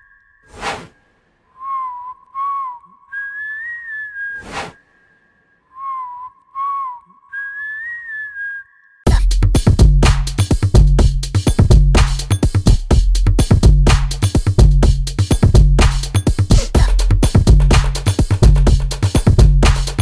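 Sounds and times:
whistled tune: 0.0s - 9.1s
brief rush of noise: 4.3s - 5.0s
electronic track with drum-machine beat: 9.1s - 20.0s.

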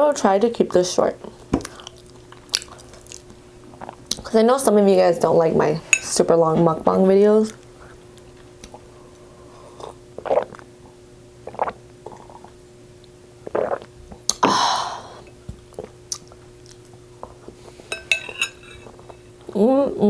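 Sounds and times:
faint steady hum: 0.0s - 20.0s
person chewing: 1.6s - 4.2s, 13.4s - 14.4s, 15.6s - 17.8s
person swallowing and gulping: 1.6s - 4.2s, 9.8s - 10.7s, 11.4s - 12.6s, 13.4s - 14.6s.

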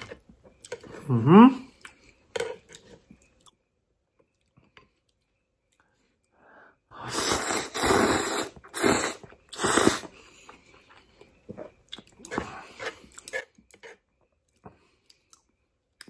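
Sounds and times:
noodles slurped: 7.0s - 10.3s.

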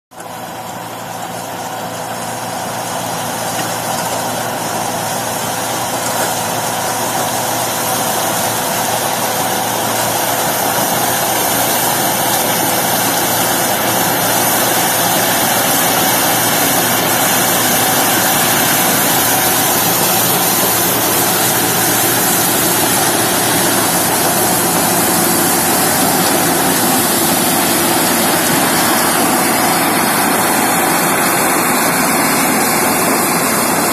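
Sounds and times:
harvester mechanical noise: 0.2s - 33.9s.

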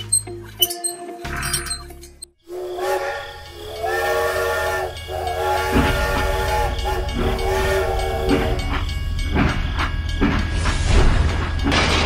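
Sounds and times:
steam locomotive whistle chord: 2.4s - 11.4s
low rumble of train running: 2.4s - 12.0s.

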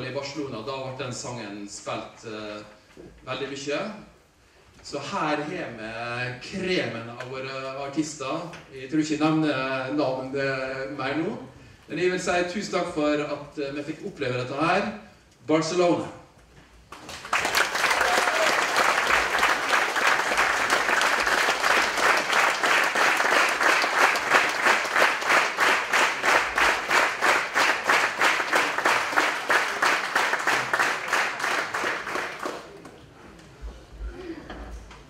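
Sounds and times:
audience applauding: 16.9s - 33.0s.

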